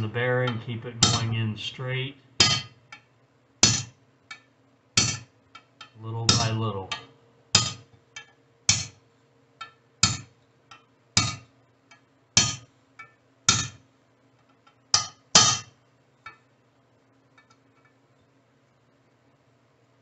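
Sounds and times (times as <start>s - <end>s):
hammer tapping metal punch: 0.0s - 1.3s, 2.4s - 9.0s, 9.6s - 13.8s, 15.0s - 15.7s.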